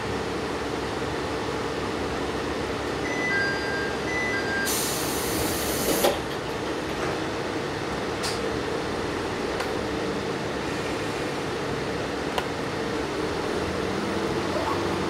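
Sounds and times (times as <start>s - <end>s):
air hiss: 4.7s - 6.1s.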